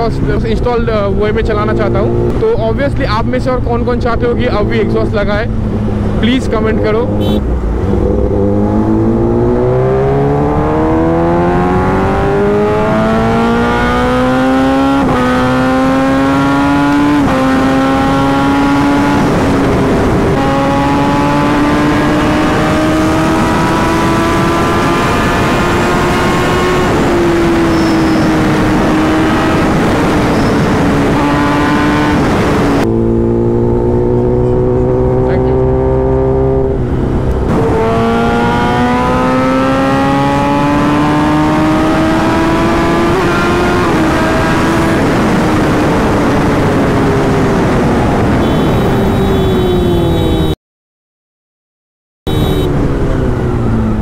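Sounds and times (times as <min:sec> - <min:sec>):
motorcycle accelerating through gears: 0:03.5 - 0:50.5.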